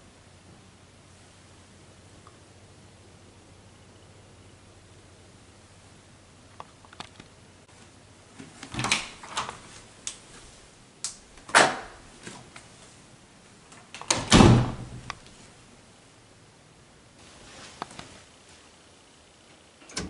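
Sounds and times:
elevator door banging shut: 0:14.1 - 0:15.1.

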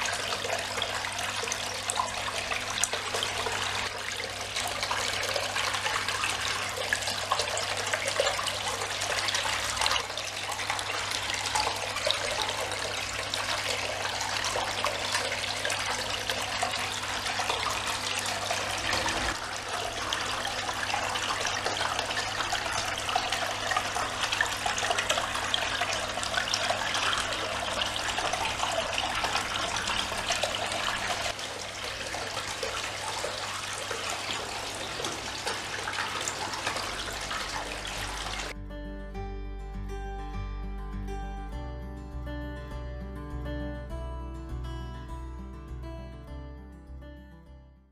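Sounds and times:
faint steady hum: 0:00.0 - 0:38.9
fountain water splashing: 0:02.1 - 0:38.6.

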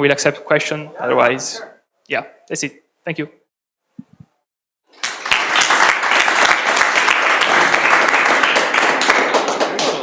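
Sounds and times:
audience applauding: 0:04.9 - 0:10.0.

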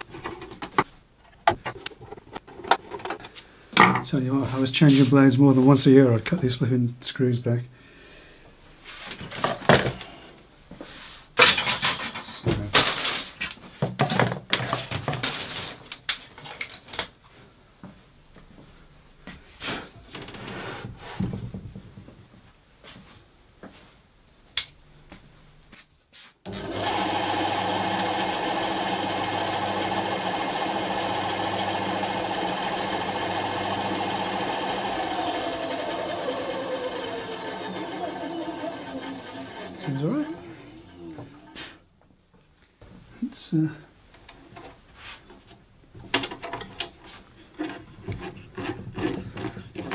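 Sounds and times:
tools clattering on workbench: 0:11.4 - 0:12.6
bandsaw motor hum: 0:26.5 - 0:41.6.

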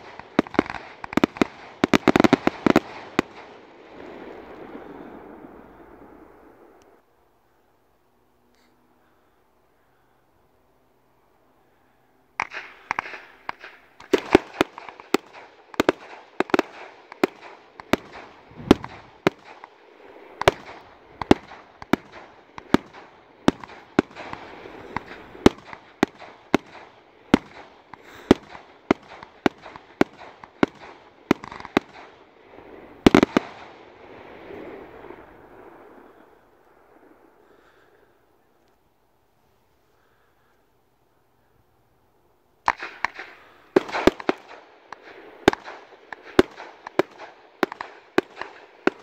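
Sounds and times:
firework cake firing shots: 0:00.0 - 0:03.6, 0:12.4 - 0:19.7, 0:20.4 - 0:32.2, 0:42.7 - 0:49.0
firework hiss and crackle: 0:00.0 - 0:07.0, 0:12.4 - 0:37.4, 0:42.7 - 0:49.0.

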